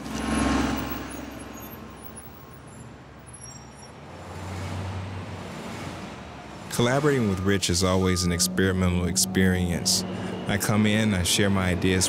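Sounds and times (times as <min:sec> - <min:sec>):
vehicle passing close: 0:04.1 - 0:12.0
low engine rumble: 0:06.3 - 0:12.0.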